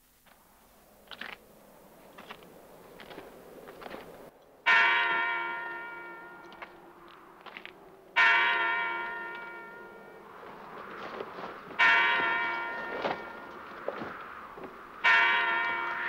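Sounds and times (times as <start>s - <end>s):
large bell ringing: 4.4s - 10.8s, 11.8s - 13.9s, 15.0s - 16.0s.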